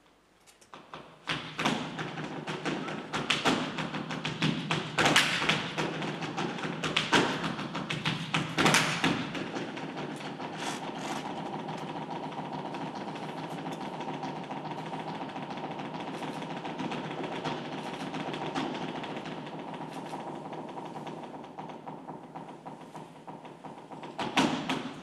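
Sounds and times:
shoes stamping on wooden floor: 1.0s - 25.0s.

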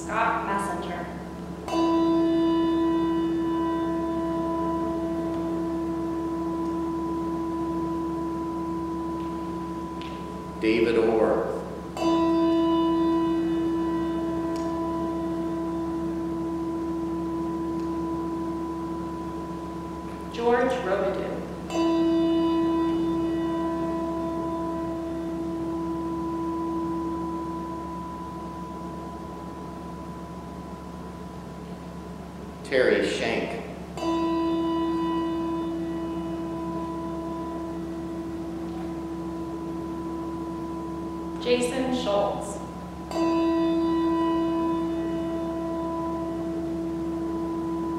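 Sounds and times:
bell ringing: 1.6s - 33.2s.

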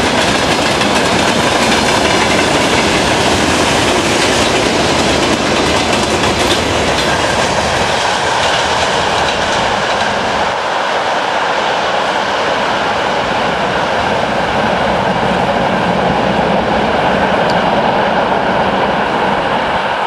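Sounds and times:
train wheels on rails: 0.0s - 20.0s.

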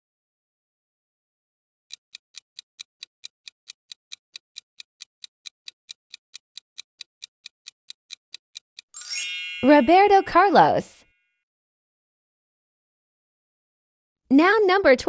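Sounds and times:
countdown timer ticking: 1.9s - 10.8s.

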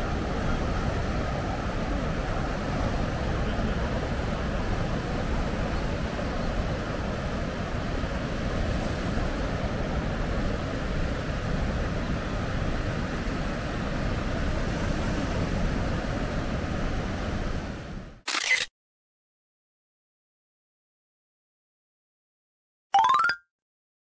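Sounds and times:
wind: 0.0s - 18.7s.

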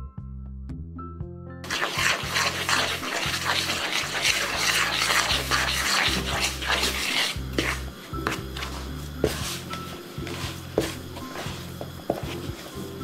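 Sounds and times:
background music: 0.0s - 13.0s
fork scraping in plastic bowl: 1.6s - 11.6s
dough kneading: 1.6s - 13.0s.

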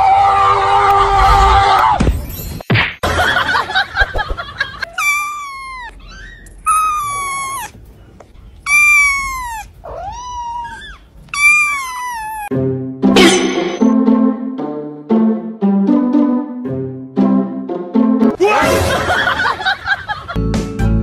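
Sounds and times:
kitten meowing: 4.8s - 7.8s, 8.6s - 12.5s.

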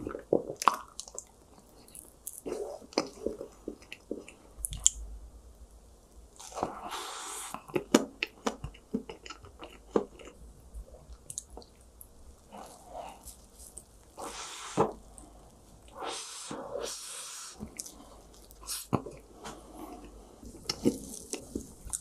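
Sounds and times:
cookie crunching: 20.0s - 22.0s.

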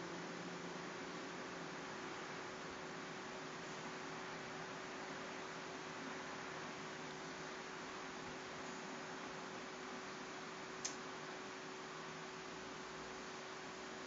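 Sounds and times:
faint steady hum: 0.0s - 14.0s
low background hiss: 0.0s - 14.0s
sharp click: 10.8s - 11.0s.

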